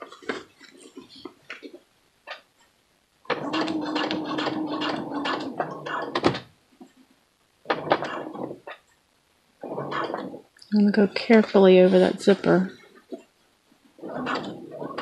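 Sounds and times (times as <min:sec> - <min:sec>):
sewing machine stitching: 0:03.3 - 0:06.4, 0:07.7 - 0:08.8, 0:14.0 - 0:15.0.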